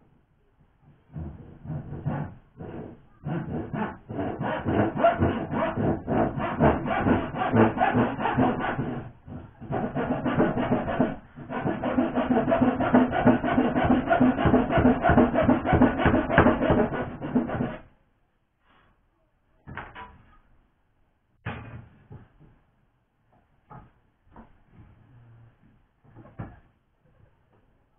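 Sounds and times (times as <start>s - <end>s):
hand saw cutting wood: 1.1s - 17.9s.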